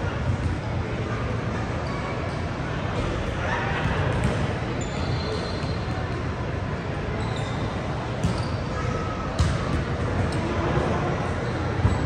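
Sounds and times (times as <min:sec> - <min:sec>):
sneakers squeaking on floor: 0:04.2 - 0:06.0, 0:07.1 - 0:08.8, 0:11.6 - 0:12.0.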